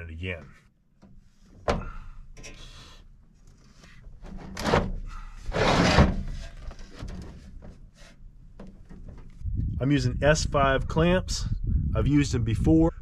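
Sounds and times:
sheet metal scraping and clattering: 4.2 - 9.3.

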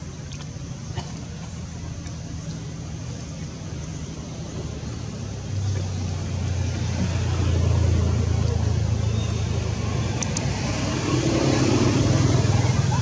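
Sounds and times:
vehicle engine hum: 0.0 - 13.0.

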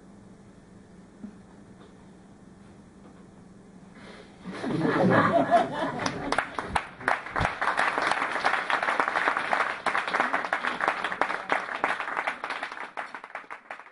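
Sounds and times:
audience applauding: 5.3 - 13.9.

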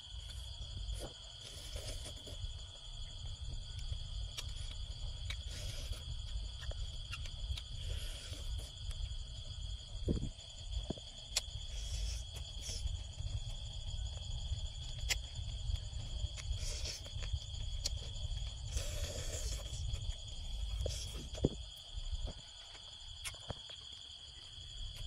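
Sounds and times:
crickets trilling: 0.0 - 25.0
crunchy biting and chewing: 0.1 - 25.0.

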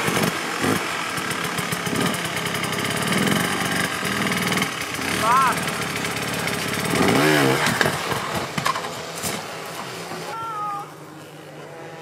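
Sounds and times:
dirt bike engine revving: 0.0 - 12.0
bike knocking on rock: 7.6 - 10.4.

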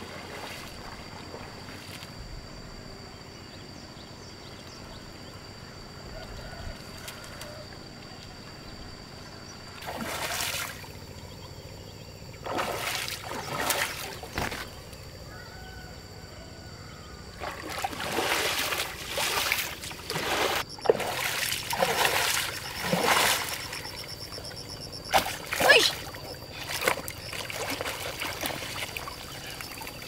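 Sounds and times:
pond water splashing: 0.0 - 2.0, 9.8 - 11.2, 12.3 - 15.0, 17.3 - 30.0.

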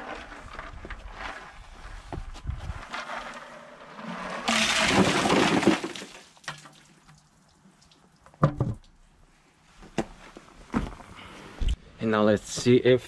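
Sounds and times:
ice water splashing and rattling: 4.0 - 9.0.

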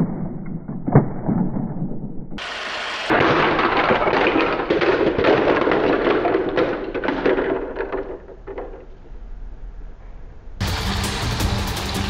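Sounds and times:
plastic toy pieces clattering on concrete: 3.1 - 9.1.

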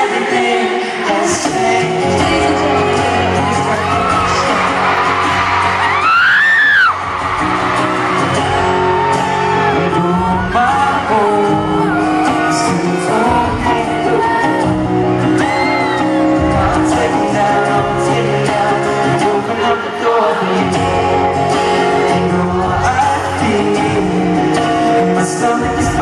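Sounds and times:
people singing: 0.0 - 6.2, 9.6 - 26.0
strummed acoustic guitars: 0.0 - 26.0
crowd scream: 2.0 - 17.7.

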